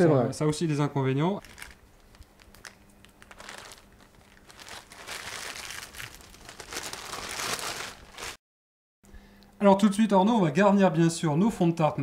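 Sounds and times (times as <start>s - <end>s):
plastic bag crinkling: 1.4s - 8.4s.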